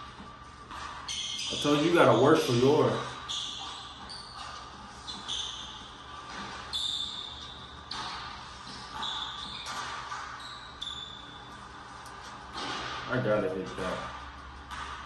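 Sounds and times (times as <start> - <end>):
sneakers squeaking on hardwood: 0.0 - 15.0
basketball dribbling: 0.7 - 11.2, 14.4 - 15.0.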